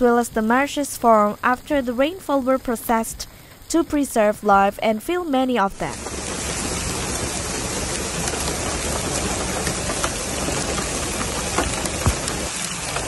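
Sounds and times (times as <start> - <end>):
heavy rain on a car: 5.9 - 13.0
raindrops tapping on car body: 5.9 - 13.0.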